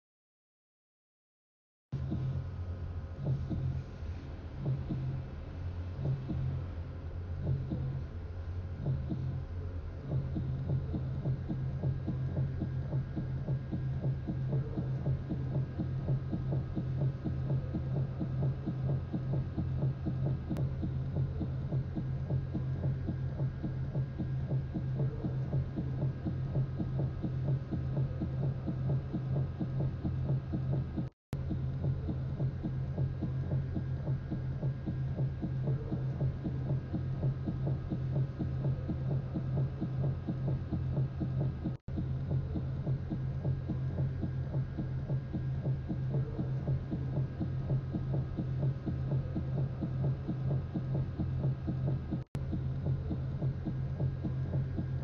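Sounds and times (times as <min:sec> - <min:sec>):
low throbbing drone: 0:02.0 - 0:55.0.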